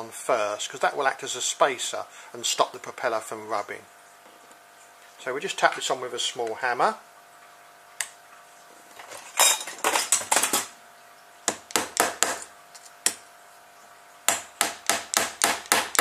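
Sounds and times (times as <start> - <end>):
hammer tapping metal rod: 11.5 - 12.5, 14.3 - 16.0.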